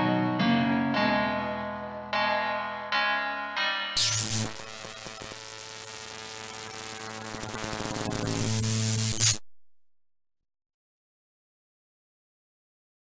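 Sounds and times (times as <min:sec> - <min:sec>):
crackling hiss: 0:04.0 - 0:09.4.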